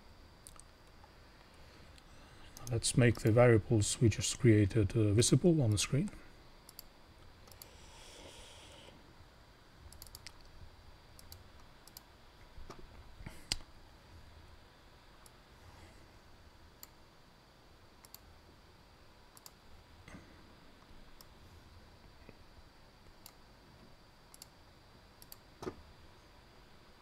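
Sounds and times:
low room hiss: 0.0 - 27.0
faint computer mouse clicks: 6.7 - 7.7, 9.9 - 10.5, 18.0 - 18.2, 19.3 - 19.6, 24.3 - 24.5, 25.2 - 25.4.

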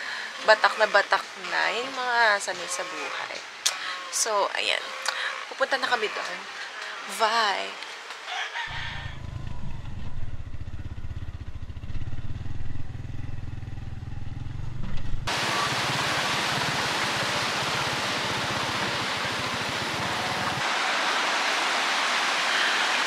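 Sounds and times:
motorcycle engine running: 8.9 - 20.6
river rushing over rapids: 15.3 - 23.0.

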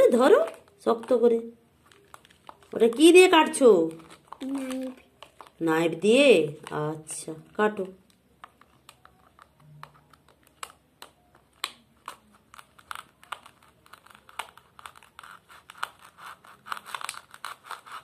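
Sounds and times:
plastic knife scraping plastic: 11.6 - 18.0.

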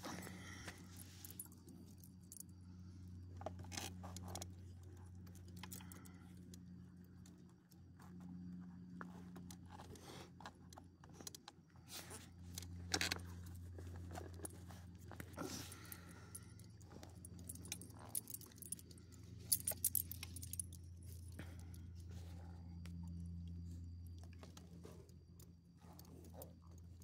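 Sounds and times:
steady low hum: 0.0 - 27.0
dog tags jangling: 15.6 - 21.4.

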